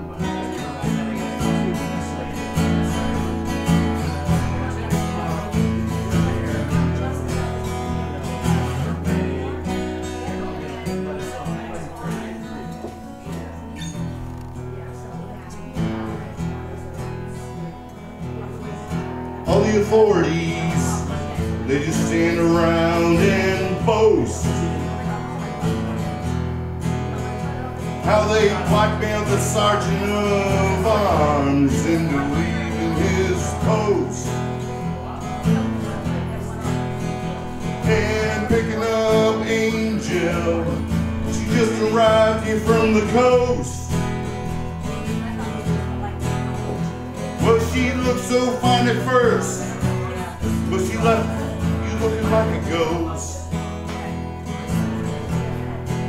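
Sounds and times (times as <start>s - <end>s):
live band with guitars: 0.0s - 56.0s.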